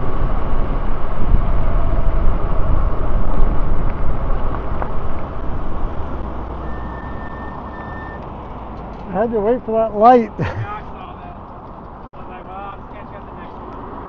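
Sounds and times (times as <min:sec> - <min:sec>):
wind buffeting microphone: 0:00.0 - 0:06.6
road rush: 0:00.0 - 0:14.0.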